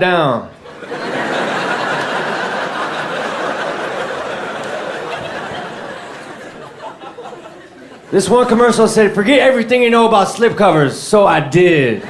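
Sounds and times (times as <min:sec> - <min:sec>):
audience laughing: 0:00.6 - 0:08.8.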